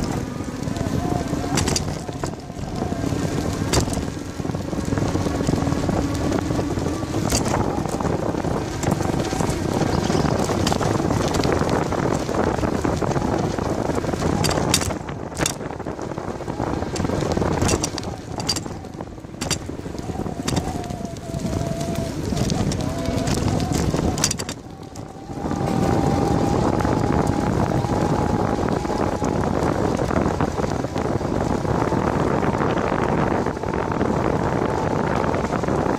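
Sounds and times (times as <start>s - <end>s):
bicycle riding on rough asphalt: 0.0s - 35.9s
wind on microphone: 0.0s - 35.9s
bike knocks and rattles: 1.4s - 6.4s, 7.1s - 13.6s, 14.2s - 16.0s, 16.8s - 21.0s, 22.4s - 24.9s.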